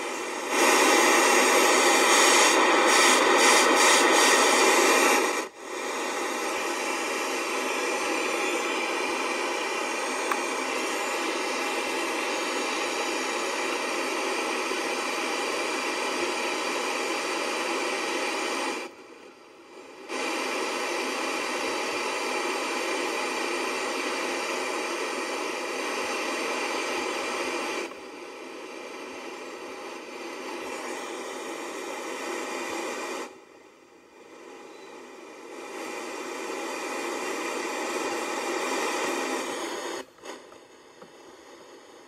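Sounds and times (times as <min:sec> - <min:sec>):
radio static hiss: 0:00.0 - 0:42.0.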